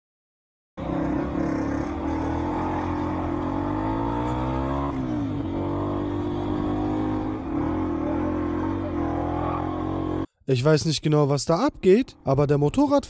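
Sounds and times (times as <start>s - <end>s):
dirt bike engine revving: 0.8s - 10.3s.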